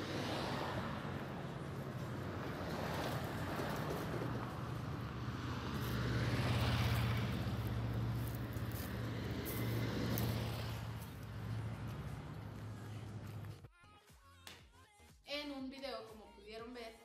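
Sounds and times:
vehicle engines humming: 0.0s - 13.7s
vehicle passing: 0.0s - 13.7s.

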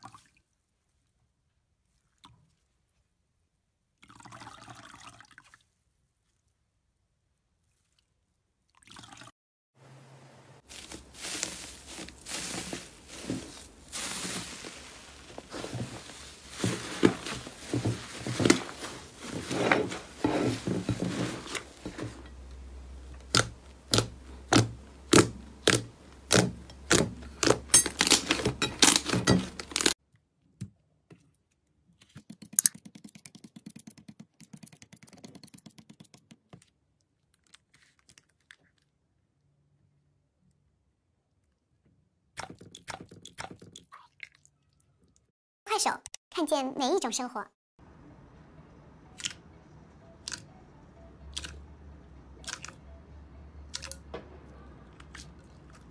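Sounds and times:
slime squelching and crackling: 10.6s - 30.0s, 52.4s - 52.8s
slime popping: 23.3s - 27.6s.

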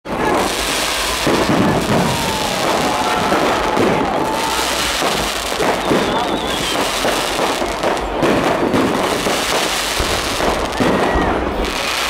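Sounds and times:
aerial fireworks barrage: 0.0s - 12.0s
thin high firework whistle: 0.9s - 7.7s.

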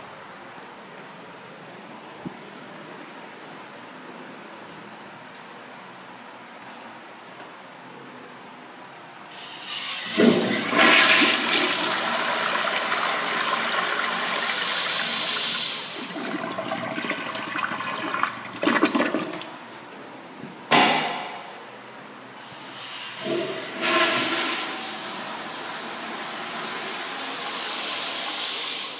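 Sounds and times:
toilet flushing: 9.3s - 19.8s, 22.7s - 28.9s.

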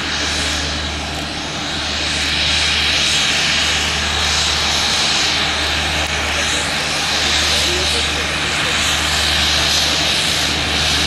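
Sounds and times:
turboprop engine whine: 0.0s - 11.0s.

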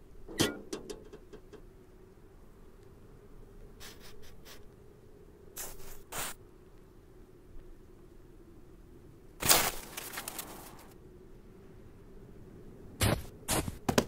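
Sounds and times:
soft cartoon rustling: 9.5s - 11.0s.

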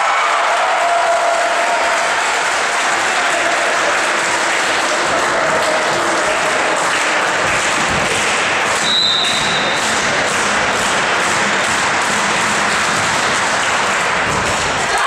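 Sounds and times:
spectators applauding: 0.0s - 15.0s
referee whistle blast: 8.8s - 9.8s.

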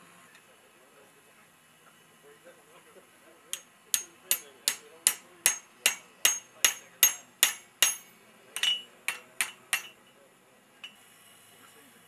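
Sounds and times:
hammer striking punch on metal: 3.5s - 10.0s.

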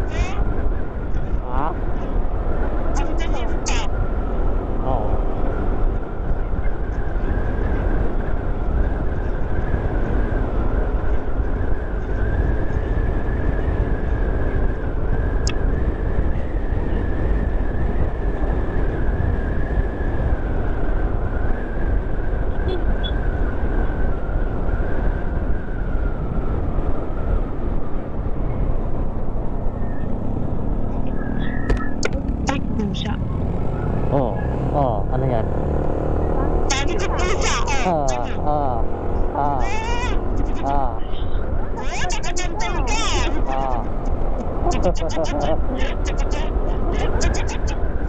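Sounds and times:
road noise: 0.0s - 48.0s
wind noise: 0.0s - 48.0s
motorcycle engine: 28.7s - 42.0s.

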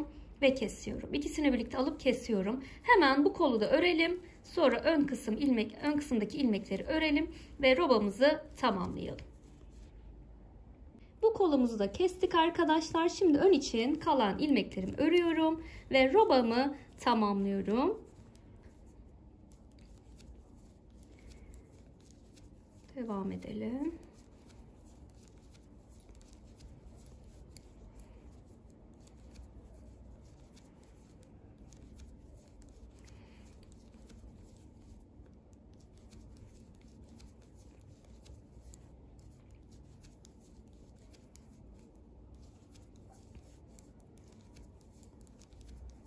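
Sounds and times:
knitting needles clicking: 35.5s - 46.0s.

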